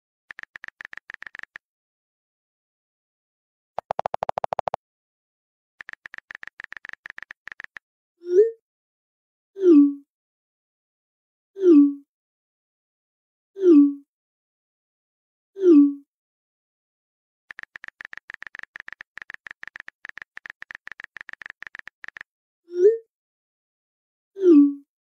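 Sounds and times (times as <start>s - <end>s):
keyboard typing clicks: 0.3s - 1.6s, 3.8s - 4.8s, 5.8s - 7.8s, 17.5s - 22.3s
short pop tones: 3.8s - 4.8s.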